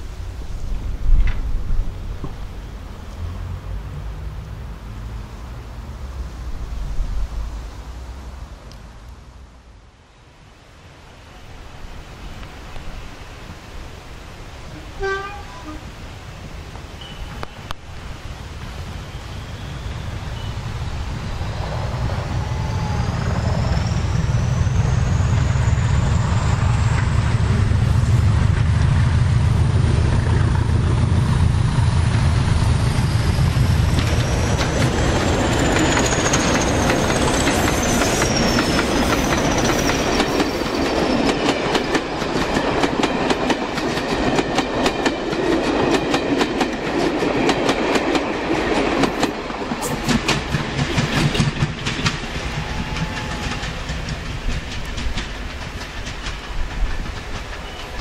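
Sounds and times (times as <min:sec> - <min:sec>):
train wheels clicking on rail joints: 0:00.6 - 0:02.5, 0:30.1 - 0:58.0
diesel locomotive engines: 0:11.2 - 0:58.0.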